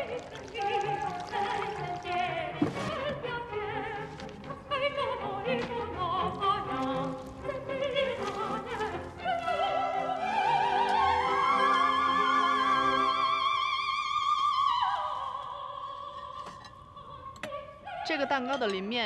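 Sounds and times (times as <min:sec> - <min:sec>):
background music: 0:00.0 - 0:19.0
operatic soprano singing: 0:00.0 - 0:19.0.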